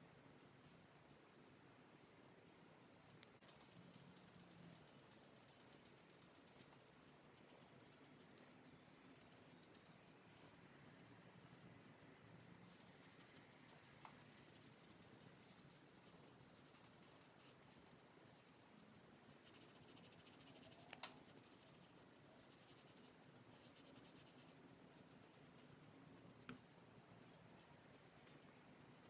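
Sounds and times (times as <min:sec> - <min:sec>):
soft clicks: 0:03.0 - 0:03.7
makeup brush rubbing on skin: 0:12.4 - 0:29.0.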